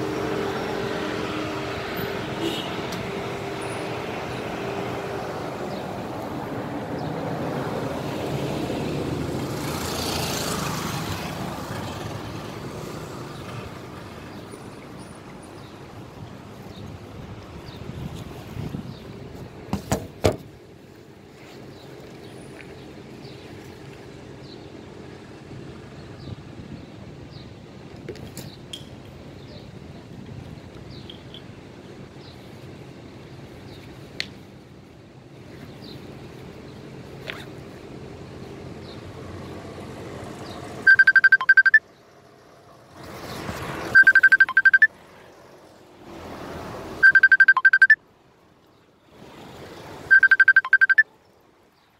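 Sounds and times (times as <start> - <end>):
outdoor background noise: 0.0 - 51.9
faint high chirps: 40.9 - 41.8, 44.0 - 44.9, 47.0 - 48.0, 50.1 - 51.1
phone ringtone beeps: 40.9 - 41.8, 43.9 - 44.9, 47.0 - 48.0, 50.1 - 51.1.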